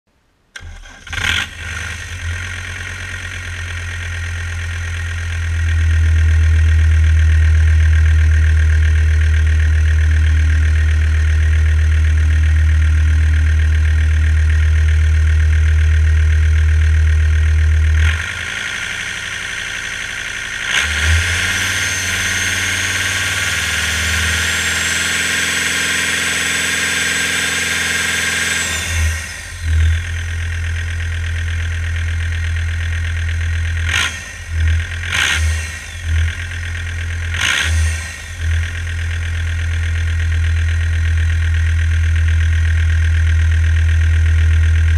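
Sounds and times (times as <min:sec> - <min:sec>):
diesel engine running: 0:00.6 - 0:44.9.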